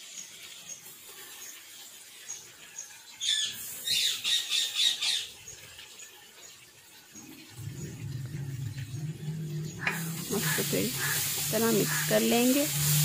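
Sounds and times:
bird squawking: 9.7 - 12.3.

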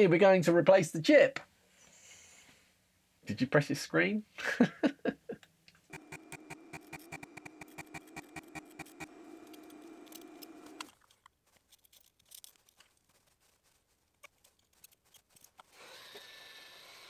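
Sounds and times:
small electric motor humming: 5.9 - 10.9
quick clicks and taps: 5.9 - 11.3.

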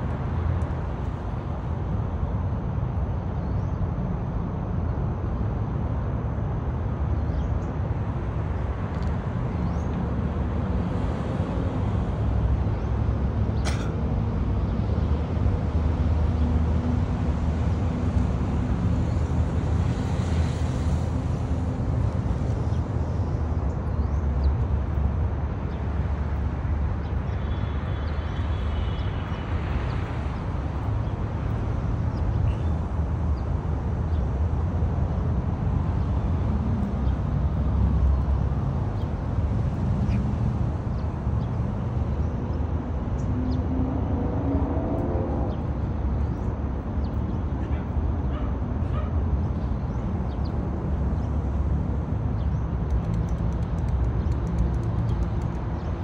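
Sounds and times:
sharp click: 52.8 - 55.7.

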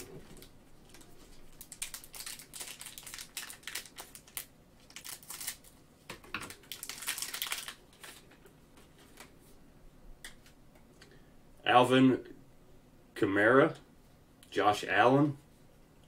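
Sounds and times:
plastic wrapper crinkling: 0.0 - 8.4
cards rustling: 0.3 - 5.7, 6.4 - 8.4.

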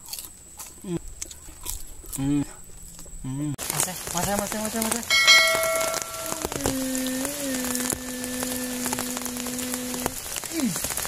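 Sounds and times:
steady rain falling: 0.9 - 11.0
held musical tone: 5.1 - 7.1.

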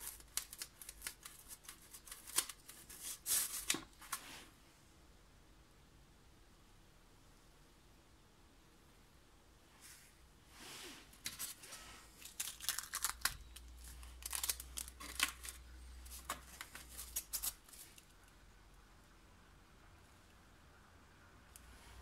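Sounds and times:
plastic wrapping crinkling: 0.0 - 4.2, 11.2 - 18.3.

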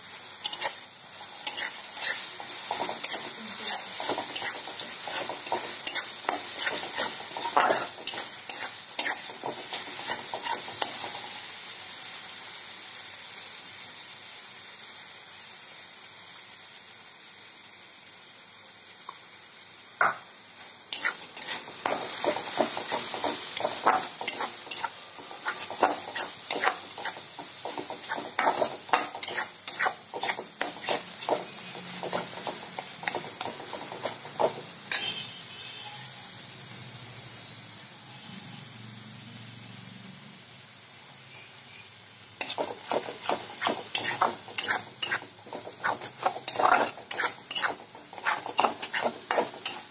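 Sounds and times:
paste sizzling in hot oil: 0.0 - 49.9
metal spatula scraping pan: 0.4 - 11.3, 20.9 - 35.3, 42.4 - 49.9.

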